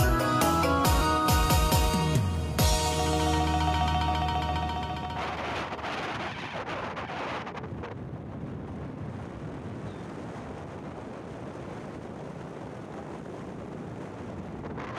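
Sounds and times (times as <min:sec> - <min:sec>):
background music: 0:00.0 - 0:05.8
road and wind noise: 0:03.3 - 0:14.9.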